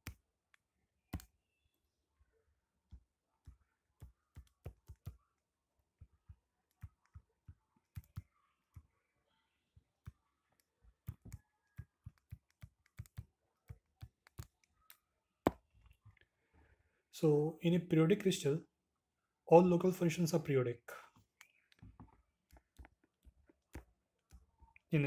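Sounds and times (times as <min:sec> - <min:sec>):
stylus tapping on tablet screen: 0:02.9 - 0:16.1, 0:21.2 - 0:24.9.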